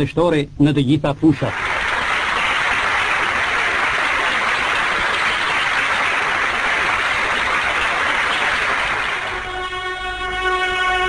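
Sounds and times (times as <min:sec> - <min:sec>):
crowd applauding: 0:01.4 - 0:09.8.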